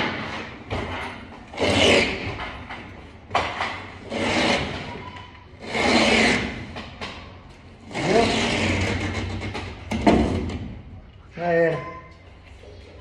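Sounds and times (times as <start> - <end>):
knife scraping gypsum board: 5.6 - 6.6.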